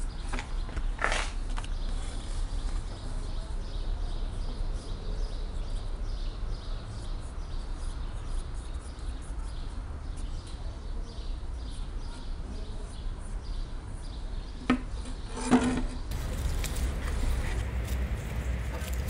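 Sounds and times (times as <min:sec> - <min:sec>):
steady low rumble: 0:16.1 - 0:19.0.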